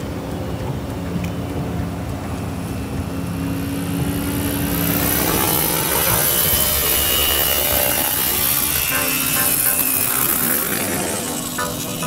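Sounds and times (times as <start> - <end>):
distant rc helicopter hum: 0.0 - 12.0.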